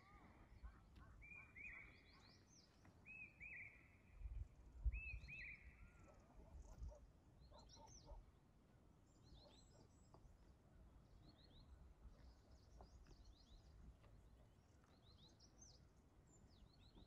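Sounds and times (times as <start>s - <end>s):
faint bird chirps: 0.0s - 8.2s.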